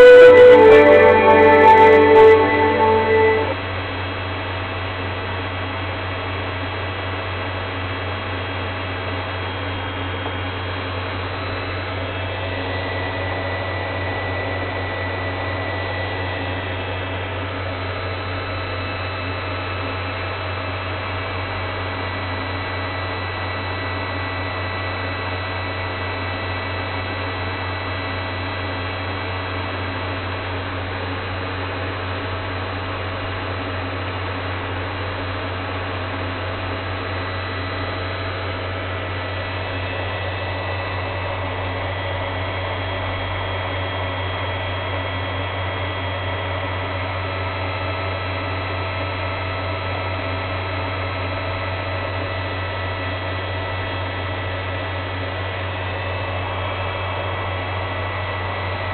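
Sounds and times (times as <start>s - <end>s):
steady low hum: 0.0s - 4.0s.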